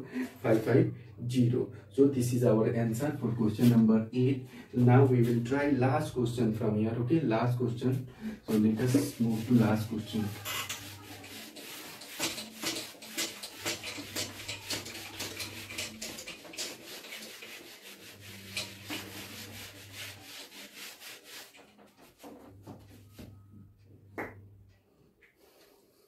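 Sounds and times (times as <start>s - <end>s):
eraser rubbing on whiteboard: 8.5s - 22.9s.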